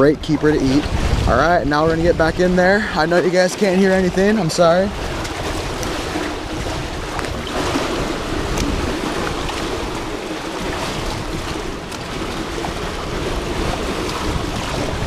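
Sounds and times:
man talking: 0.0s - 5.0s
river current rushing: 0.0s - 15.0s.

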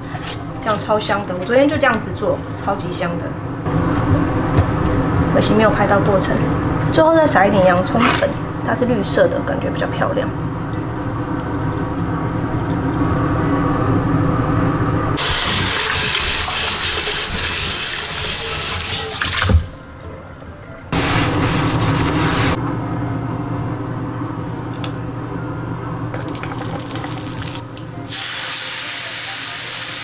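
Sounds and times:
steady low hum: 0.0s - 15.2s
tap water running into a pan: 15.2s - 19.7s, 26.2s - 30.0s.

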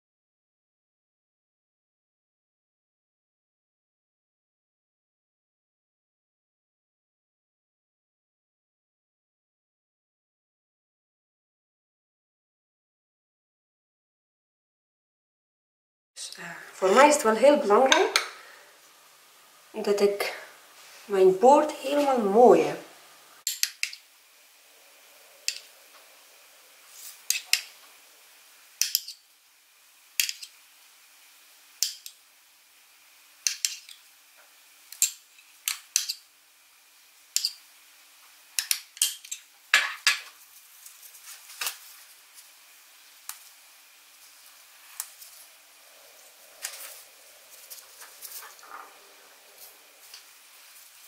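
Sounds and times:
metal spoon clinking on ceramic: 23.4s - 24.0s.

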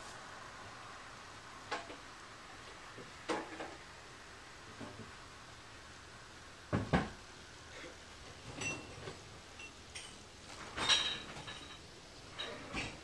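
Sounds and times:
light clinks: 9.6s - 10.2s.

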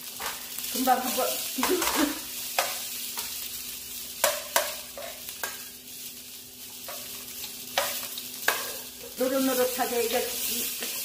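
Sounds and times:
shrimp sizzling in oil: 0.0s - 11.0s.

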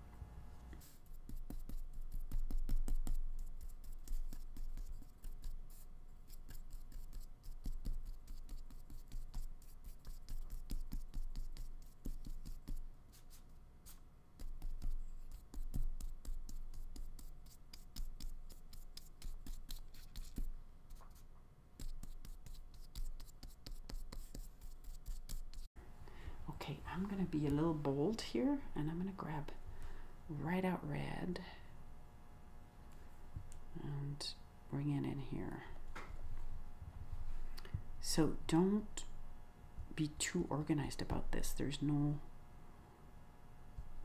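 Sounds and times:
paintbrush scratching on paper: 0.8s - 25.7s.

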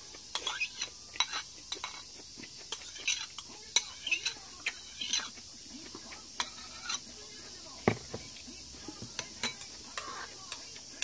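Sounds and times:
spoons clinking against porcelain bowls: 0.0s - 7.2s, 7.8s - 11.0s.

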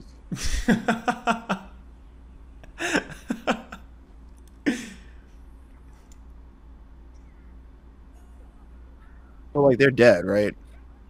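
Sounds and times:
man laughing: 0.3s - 1.8s, 2.6s - 3.9s, 4.7s - 5.1s.

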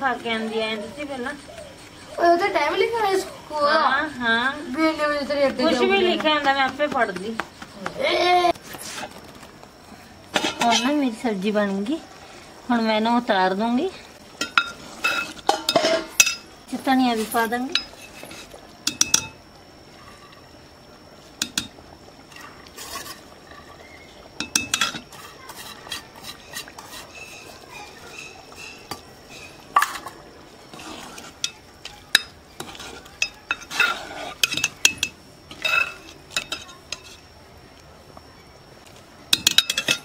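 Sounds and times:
metal ladle clinking and scraping pot: 14.4s - 16.5s, 17.2s - 19.4s, 22.3s - 23.7s, 24.4s - 37.2s, 39.3s - 40.0s.

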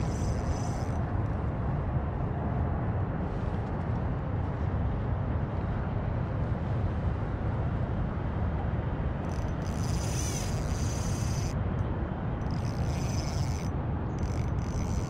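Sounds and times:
fishing reel whirring: 0.0s - 1.2s, 9.2s - 11.6s, 12.4s - 15.0s.

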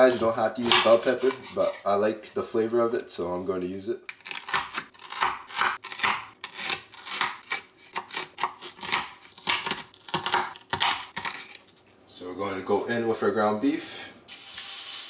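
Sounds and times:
knife cutting on wooden board: 0.1s - 1.8s.

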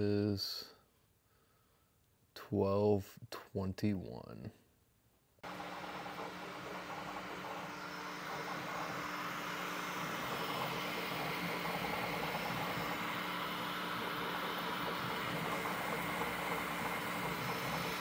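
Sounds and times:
printer fans and print head whirring: 5.4s - 18.0s.

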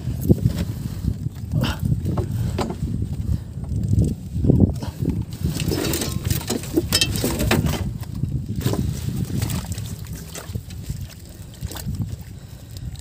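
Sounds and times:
water splashing and sloshing: 0.0s - 13.0s.

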